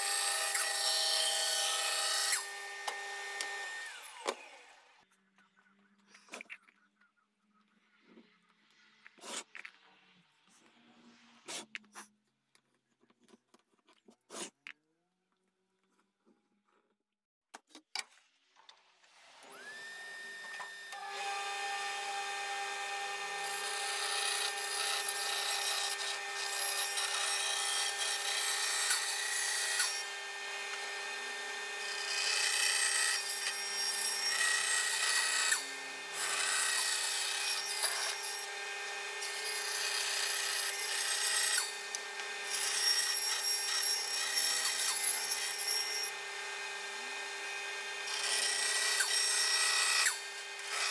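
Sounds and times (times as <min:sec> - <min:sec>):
bandsaw humming: 0:00.0 - 0:04.9
bandsaw blade cutting wood: 0:00.0 - 0:05.0, 0:19.4 - 0:50.9.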